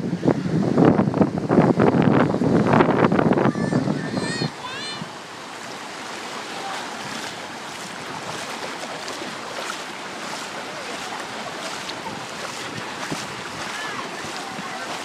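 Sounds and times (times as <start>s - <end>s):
small waves breaking: 3.4s - 15.0s.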